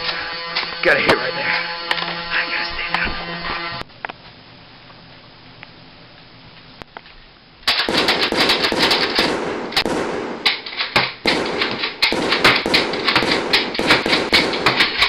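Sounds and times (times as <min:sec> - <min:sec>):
machine-gun fire: 0:07.6 - 0:15.0.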